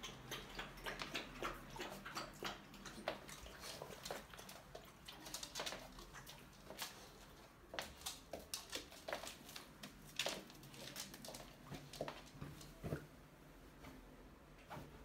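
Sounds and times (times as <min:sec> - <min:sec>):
dog paws tapping on floor: 0:00.0 - 0:13.1.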